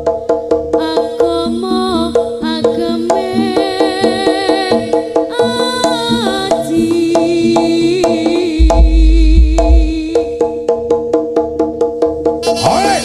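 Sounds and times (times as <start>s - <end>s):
heavy deep boom: 8.6s - 10.2s
sustained pitched notes: 8.6s - 10.2s
fast percussion strikes: 8.6s - 12.5s.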